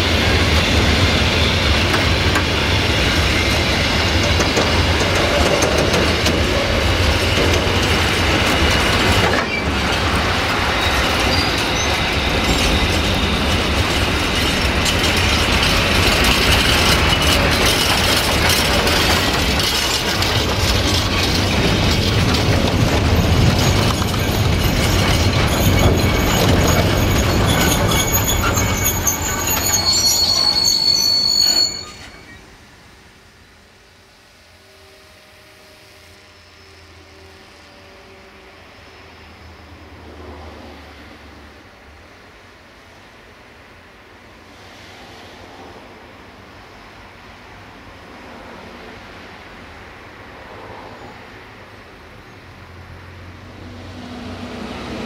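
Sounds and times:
freight wagon wheels rumbling: 0:03.6 - 0:30.6
brake and wheel squeal: 0:05.1 - 0:32.5.

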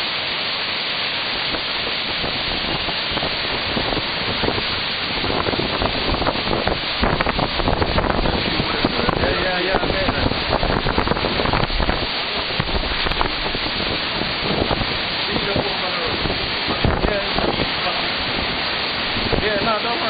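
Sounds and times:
rain falling: 0:00.0 - 0:20.0
strong wind gusting through trees: 0:00.0 - 0:20.0
wind buffeting microphone: 0:01.3 - 0:20.0.

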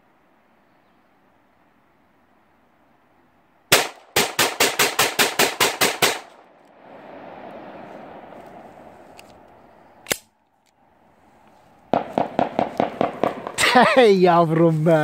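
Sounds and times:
gunshots: 0:03.7 - 0:06.4, 0:11.9 - 0:13.8
rolling gunfire echo: 0:03.7 - 0:06.5, 0:11.9 - 0:13.8.

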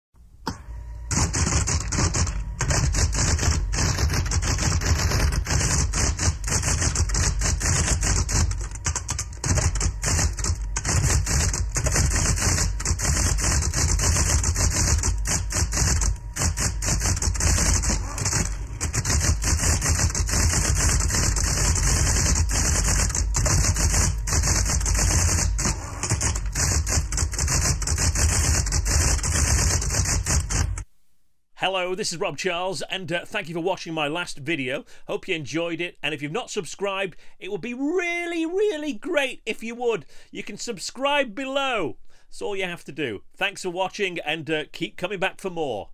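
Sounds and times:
steady low hum: 0:00.2 - 0:31.2
electric typewriter typing: 0:01.1 - 0:30.8.

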